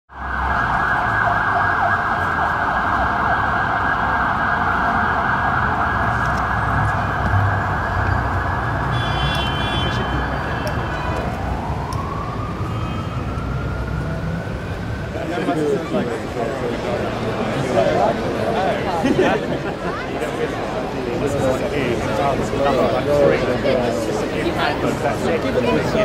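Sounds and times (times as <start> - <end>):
emergency siren yelp and wail: 0.1 - 18.3
low traffic rumble: 0.1 - 26.0.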